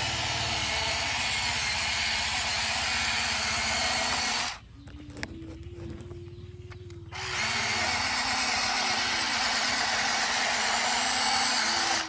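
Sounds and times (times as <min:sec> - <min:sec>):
electric motors whining: 0:00.0 - 0:12.0.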